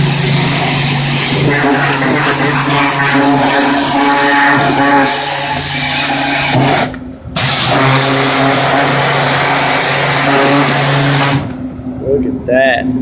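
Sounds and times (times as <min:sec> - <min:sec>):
pressure washer motor: 0:00.0 - 0:11.6
water spray hissing: 0:00.2 - 0:06.8.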